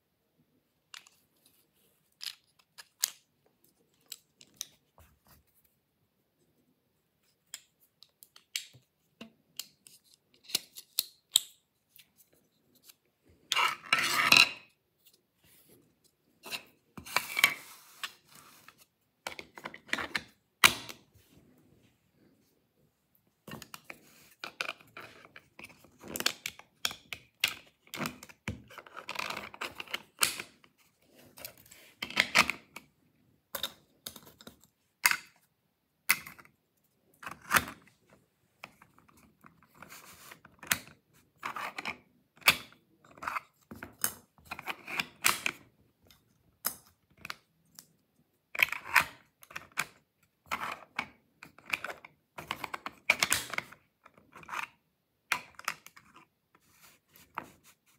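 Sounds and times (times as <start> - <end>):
plastic parts clicking and scraping: 0.8 - 5.4, 23.4 - 32.9, 33.5 - 35.5, 36.1 - 57.8.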